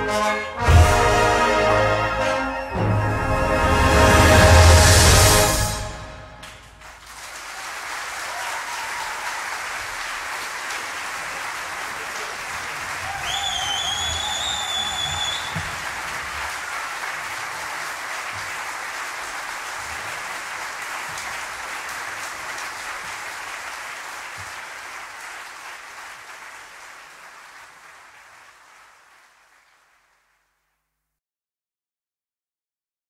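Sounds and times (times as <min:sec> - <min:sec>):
audience applauding: 0:06.4 - 0:30.6
high whistle from crowd: 0:13.1 - 0:15.8.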